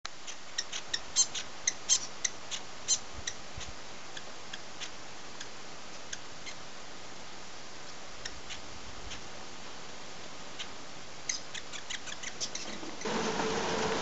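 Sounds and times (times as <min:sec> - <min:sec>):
bird chip calls: 0:00.2 - 0:06.6, 0:10.6 - 0:13.7.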